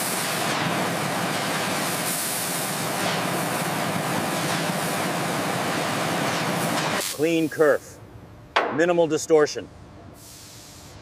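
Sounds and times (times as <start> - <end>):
cutting torch hissing: 0.0 - 7.8, 10.2 - 11.0.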